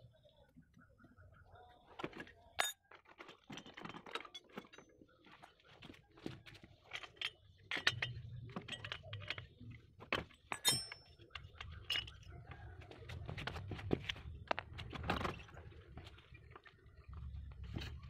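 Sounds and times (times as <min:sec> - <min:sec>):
metal tools clicking and clinking: 0:02.6 - 0:05.0, 0:06.9 - 0:09.6, 0:10.5 - 0:12.3.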